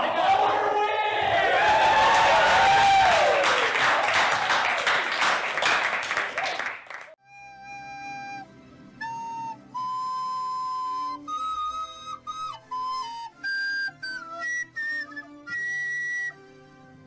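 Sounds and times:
audience cheering and applauding: 0.0 - 7.2
slow music melody: 7.1 - 17.0.

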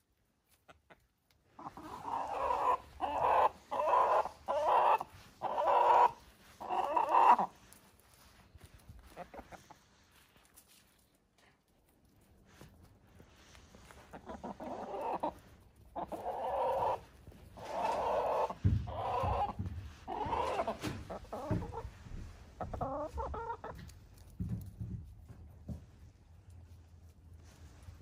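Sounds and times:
hens clucking: 0.4 - 10.2, 13.5 - 24.7.

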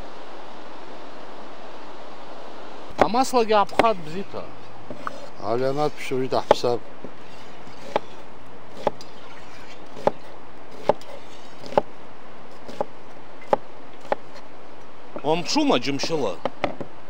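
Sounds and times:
background hiss: 0.0 - 17.0
knife chopping on wooden board: 3.7 - 4.0, 6.4 - 6.8, 7.8 - 9.0, 10.0 - 11.9, 12.6 - 14.3.

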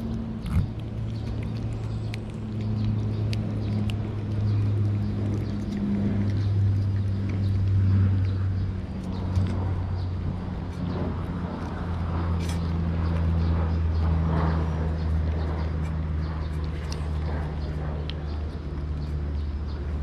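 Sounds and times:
cat licking: 0.0 - 7.9
low mechanical hum: 0.0 - 20.0.

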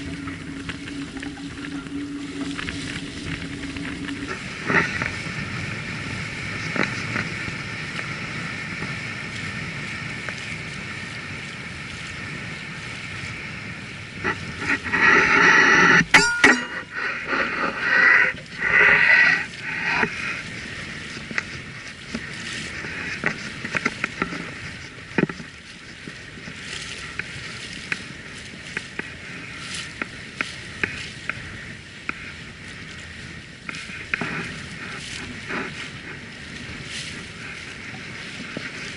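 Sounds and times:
water rushing along hull: 0.0 - 38.9
small clicks and ticks: 18.8 - 37.2.

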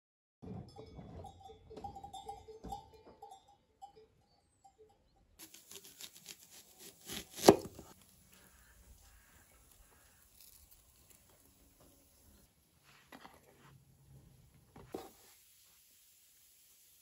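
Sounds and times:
knife slicing onion on board: 5.4 - 7.9.

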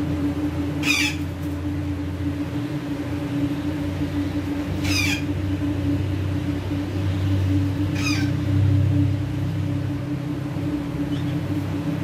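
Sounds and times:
steady low hum: 0.0 - 12.0
parakeet squawks: 0.8 - 1.4, 4.8 - 5.4, 7.8 - 8.4.

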